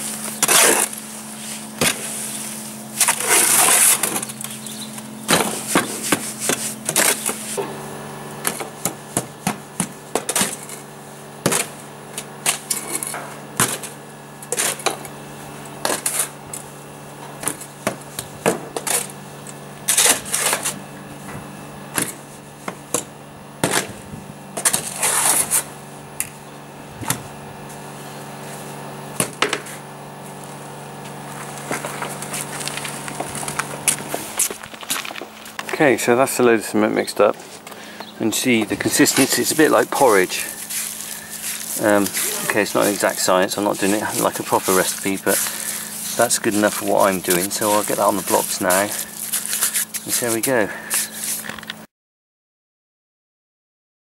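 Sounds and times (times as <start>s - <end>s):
spade scraping wet cement: 0.0s - 4.5s, 5.3s - 7.7s, 12.4s - 15.1s, 15.8s - 16.4s, 19.8s - 20.8s, 24.6s - 25.7s, 37.1s - 51.6s
steady low hum: 0.0s - 51.9s.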